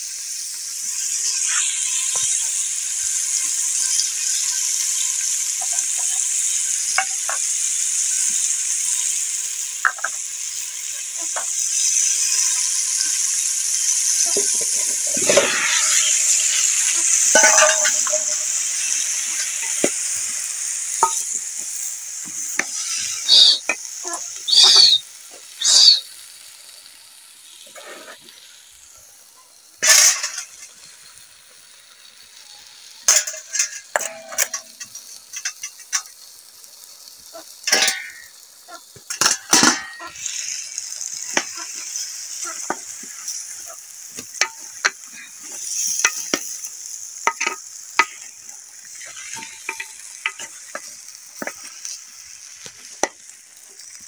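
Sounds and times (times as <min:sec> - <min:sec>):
high sizzling hiss: 0:00.0 - 0:54.0
clinks of knife and metal bowl: 0:33.2 - 0:36.1.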